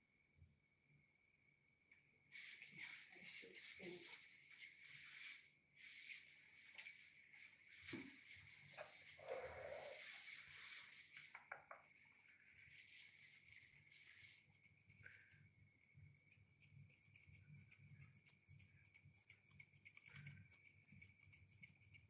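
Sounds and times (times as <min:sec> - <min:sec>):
scissors snipping through fur: 0:11.2 - 0:22.0.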